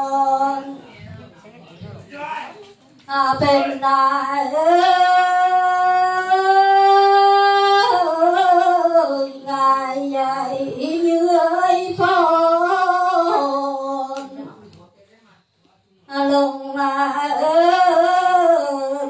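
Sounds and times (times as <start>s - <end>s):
woman singing folk song: 3.1s - 14.4s, 16.1s - 19.0s.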